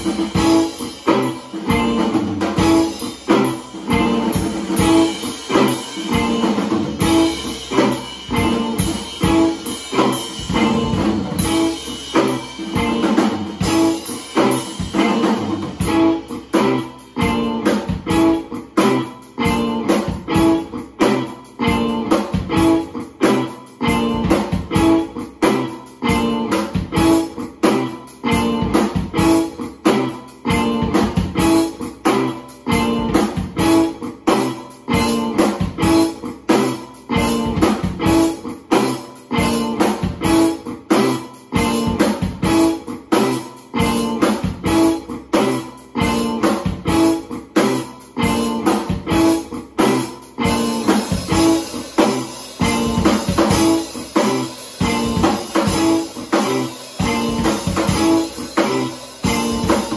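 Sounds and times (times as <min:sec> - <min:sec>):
drum kit steady beat: 0:00.0 - 0:59.9.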